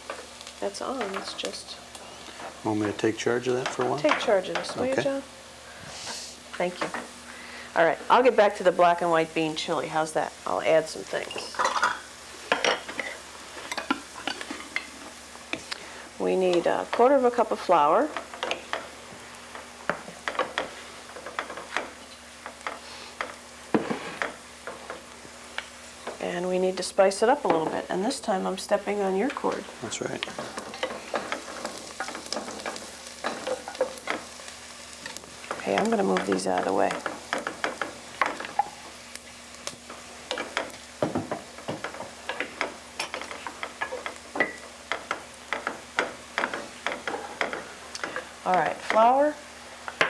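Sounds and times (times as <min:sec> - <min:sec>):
vegetables frying in a skillet: 0:00.0 - 0:50.0
wooden spoon scraping a pan: 0:20.0 - 0:25.0, 0:30.2 - 0:38.8, 0:40.0 - 0:49.2.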